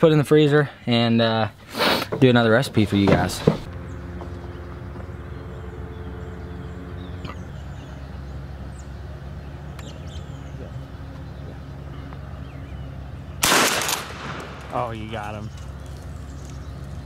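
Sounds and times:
engine idling: 3.4 - 17.0
bird chirps: 3.7 - 13.4, 14.7 - 17.0.

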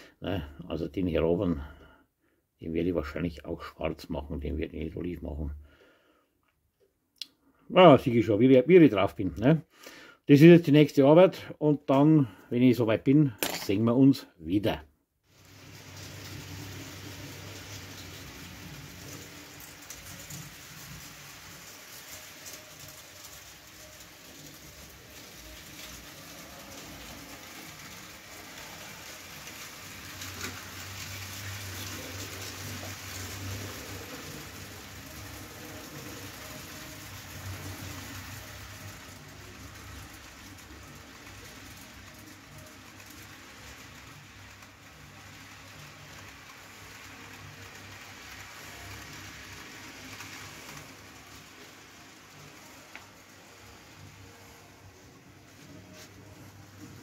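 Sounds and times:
model train wheels rattling: 15.4 - 57.0.

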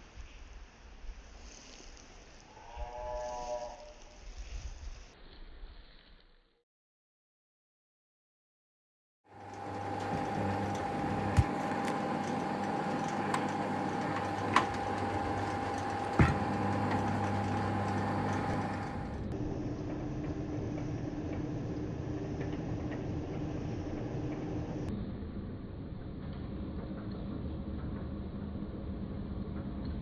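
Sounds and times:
drill press motor running: 9.3 - 24.9.

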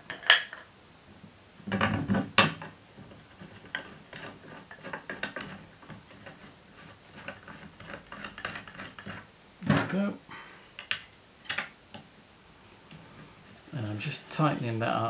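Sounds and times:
wooden parts knocking together: 1.7 - 2.8.

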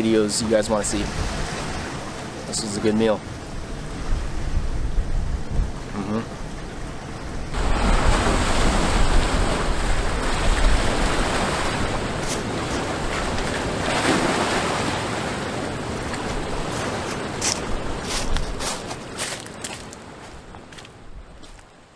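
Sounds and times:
ocean surf on rocky shore: 0.0 - 21.9
wind on the microphone: 0.6 - 2.4, 3.3 - 15.0, 15.7 - 19.4.

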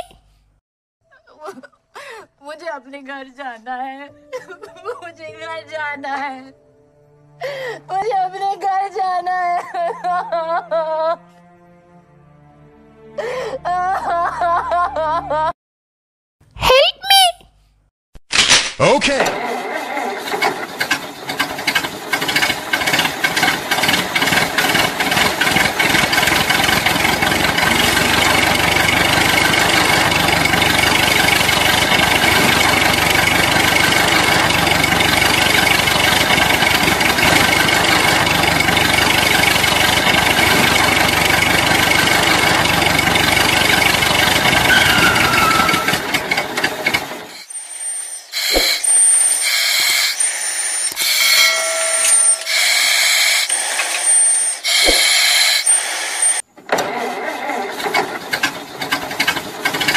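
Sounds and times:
tractor engine running: 19.4 - 47.5, 48.3 - 59.9
short high electronic tones: 44.5 - 46.4, 47.4 - 56.4.

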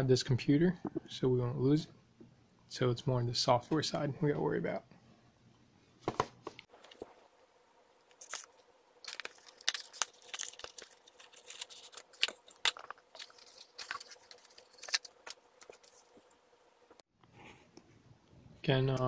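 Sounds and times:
cardboard and plastic crinkling: 8.1 - 16.3.

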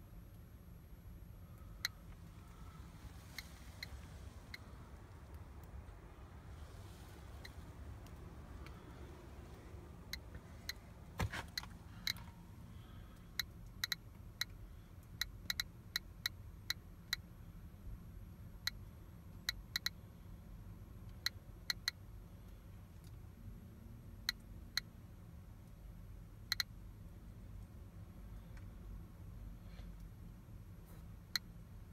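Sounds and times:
geiger counter clicking: 13.2 - 17.3, 26.5 - 26.8.

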